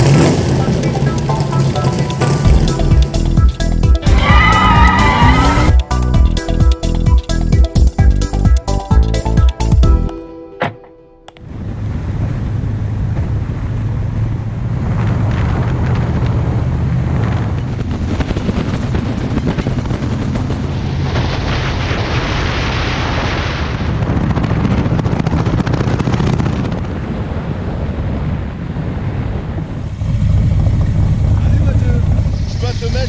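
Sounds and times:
car engine exhaust note: 0:00.0 - 0:05.9, 0:29.4 - 0:33.0
road and wind noise: 0:00.0 - 0:33.0.

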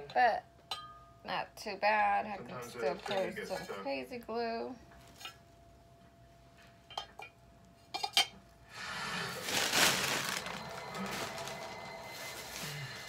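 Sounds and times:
ceramic clinks: 0:00.7 - 0:01.1
plastic bag rustling: 0:09.1 - 0:13.0.

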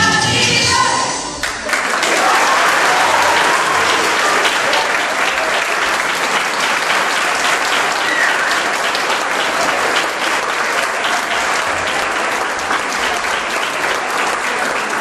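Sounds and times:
audience applauding: 0:01.4 - 0:15.0.

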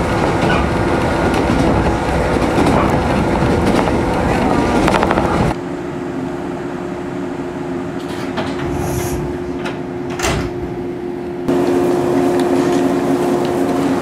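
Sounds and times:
steady equipment hum: 0:04.2 - 0:12.5
train sliding door opening: 0:08.0 - 0:11.0.

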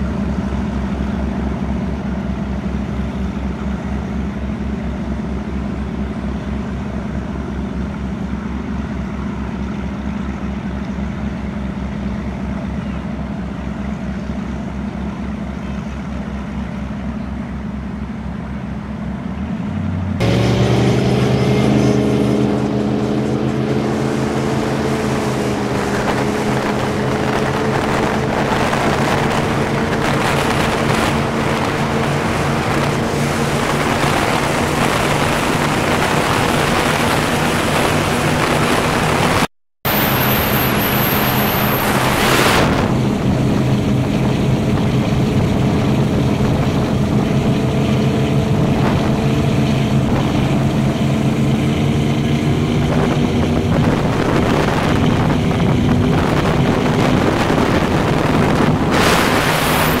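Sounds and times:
powerboat engines running: 0:00.0 - 1:00.0
wind and water rushing: 0:20.2 - 1:00.0.

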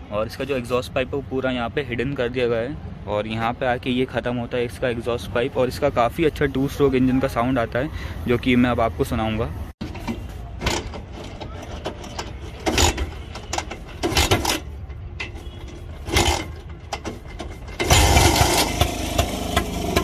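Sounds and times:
motorcycle kick-start kicks: 0:10.0 - 0:20.0
two-stroke engine running: 0:15.4 - 0:20.0.

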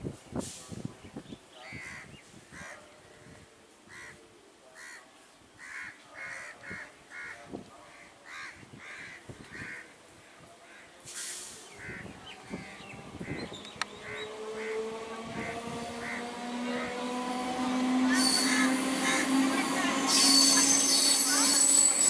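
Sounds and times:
crow cawing: 0:05.6 - 0:07.4, 0:08.3 - 0:09.8, 0:16.0 - 0:16.2.

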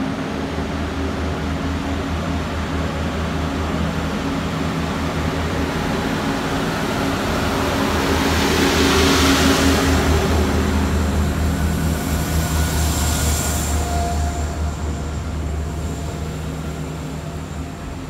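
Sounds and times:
train diesel engines droning: 0:00.0 - 0:18.0
train hiss: 0:06.0 - 0:18.0.

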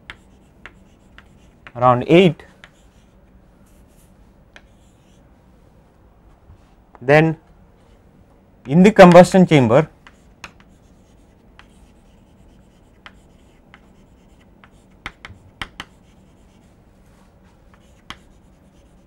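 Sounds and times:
chalk scratching on blackboard: 0:00.0 - 0:01.8, 0:02.6 - 0:05.2, 0:10.0 - 0:16.8, 0:17.7 - 0:19.0
chalk tapping on board: 0:00.0 - 0:01.8, 0:02.6 - 0:03.0, 0:10.0 - 0:16.6, 0:17.7 - 0:19.0.

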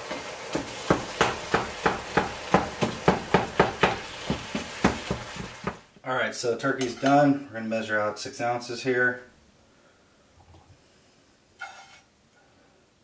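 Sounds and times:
meat sizzling: 0:00.0 - 0:05.9
spatula knocking against pan: 0:00.6 - 0:05.8.

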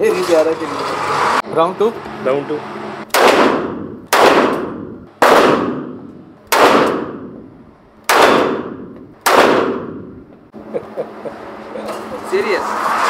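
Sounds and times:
pistol shots echoing indoors: 0:03.1 - 0:07.3, 0:08.1 - 0:10.1.

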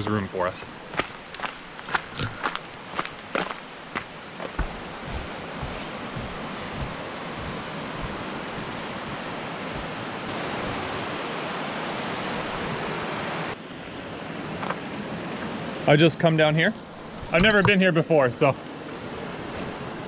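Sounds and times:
river water rushing: 0:00.7 - 0:15.8.

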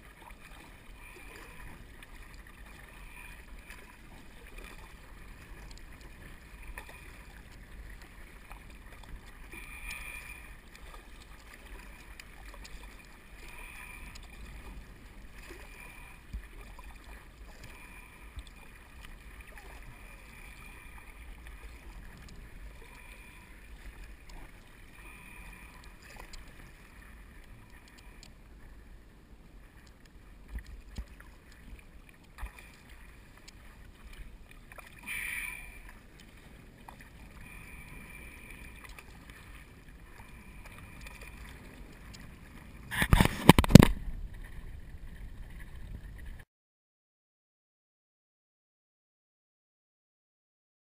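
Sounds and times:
paddle splashing through water: 0:00.0 - 0:28.8, 0:29.7 - 0:46.4
loud knock and splash: 0:42.9 - 0:44.0.

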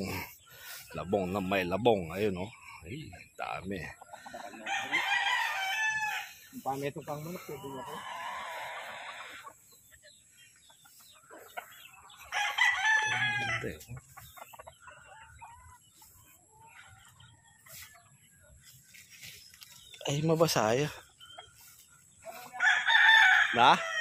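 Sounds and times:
chickens clucking: 0:00.0 - 0:24.0
rooster crowing: 0:04.4 - 0:06.4, 0:07.6 - 0:09.4, 0:12.3 - 0:13.8, 0:22.6 - 0:24.0.

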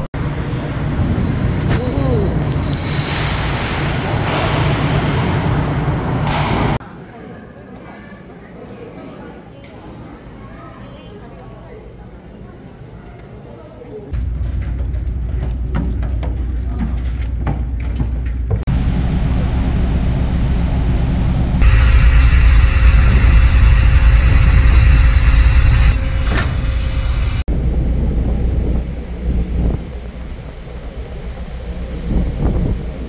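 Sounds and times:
wind: 0:00.0 - 0:33.0
ferry machinery rumble: 0:14.2 - 0:33.0.

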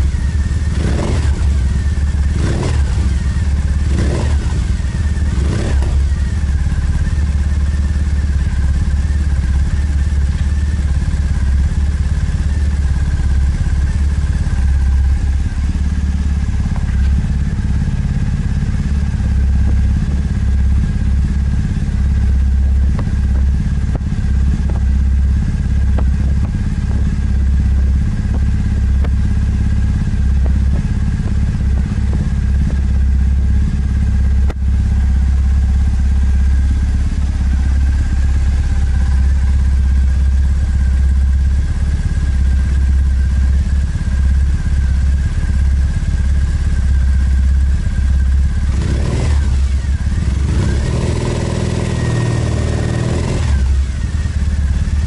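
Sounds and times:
motorcycle engine idling: 0:00.0 - 0:55.0.

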